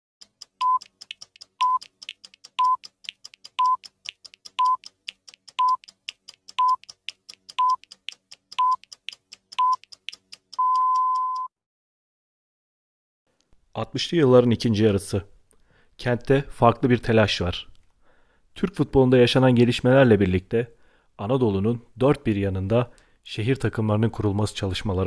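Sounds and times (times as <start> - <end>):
film projector clicks: 0.2 - 10.6
short high beeps: 0.6 - 0.9, 3.6 - 3.8, 4.6 - 4.8, 5.6 - 5.8, 6.6 - 6.8, 7.6 - 7.8, 8.6 - 8.8, 9.6 - 9.8, 10.6 - 11.5.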